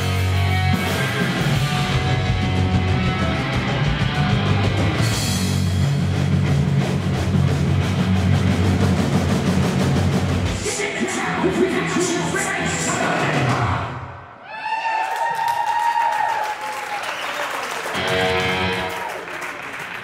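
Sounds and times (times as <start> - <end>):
rock band playing: 0.0 - 14.0, 17.8 - 19.4.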